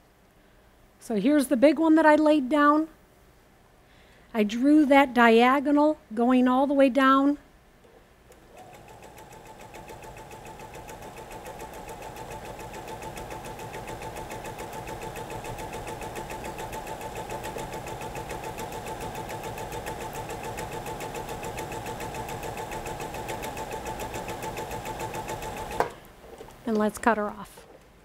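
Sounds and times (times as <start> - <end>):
sewing machine stitching: 8.5 - 25.9.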